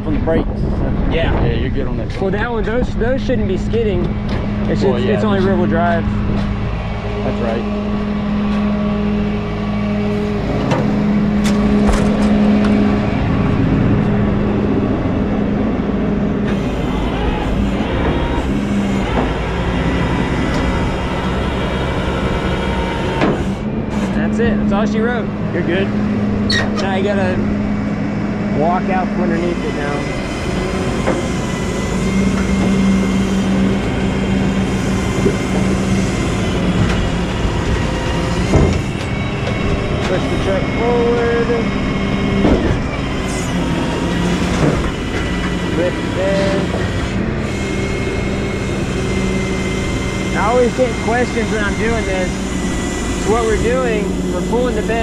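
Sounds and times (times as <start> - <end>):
truck engine and hydraulics humming: 0.0 - 55.0
sharp clunk: 10.6 - 12.7.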